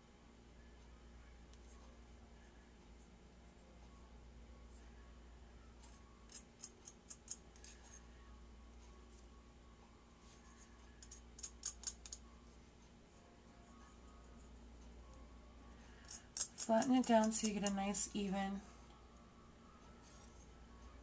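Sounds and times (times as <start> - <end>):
spoon clicking against bottle cap: 16.1 - 17.8.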